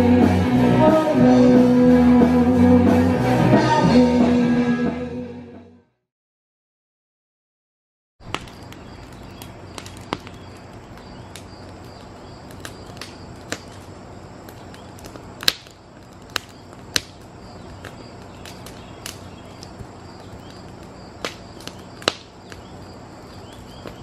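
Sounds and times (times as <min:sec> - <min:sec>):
wood fire crackling and popping: 0:08.2 - 0:24.0.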